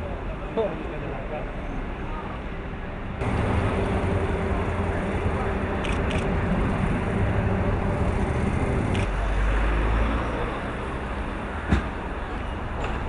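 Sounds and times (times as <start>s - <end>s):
street traffic: 0.0s - 13.0s
vehicle engine running close: 3.2s - 13.0s.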